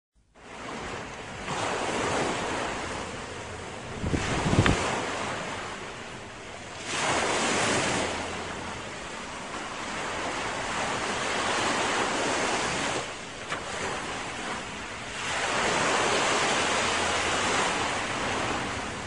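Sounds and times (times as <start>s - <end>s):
small waves washing: 0.4s - 19.0s
wind buffeting microphone: 0.6s - 6.4s.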